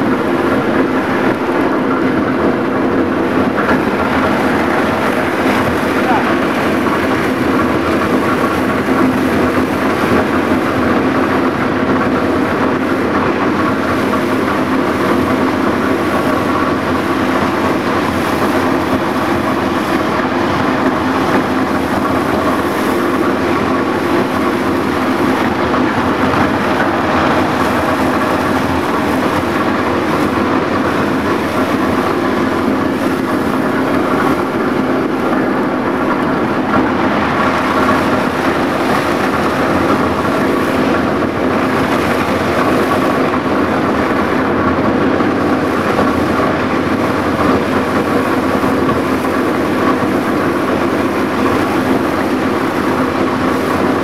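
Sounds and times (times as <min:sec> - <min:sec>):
constant hum: 0:00.0 - 0:54.0
plastic densifier machine churning: 0:00.0 - 0:54.0.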